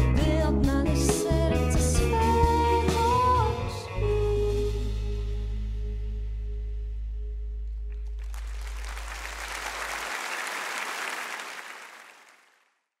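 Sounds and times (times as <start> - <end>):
audience applause: 8.2 - 12.7.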